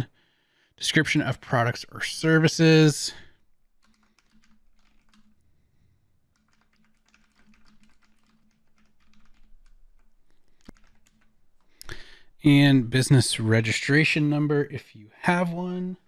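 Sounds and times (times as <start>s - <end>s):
typing on computer keyboard: 3.7s - 5.4s, 6.3s - 12.0s.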